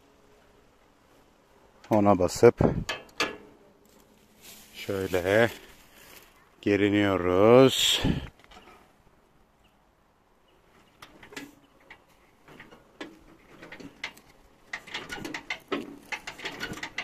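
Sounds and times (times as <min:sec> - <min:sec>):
starter rope clicks and rustling: 0:10.6 - 0:17.0.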